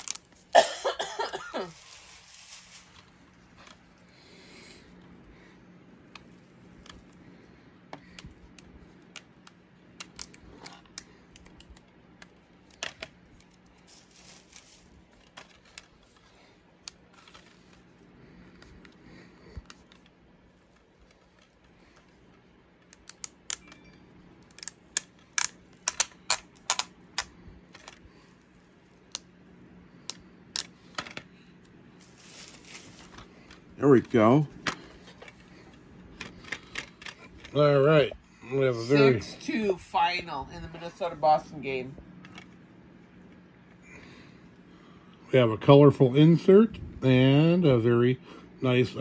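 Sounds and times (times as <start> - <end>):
faint steady hum: 0.0 - 49.0.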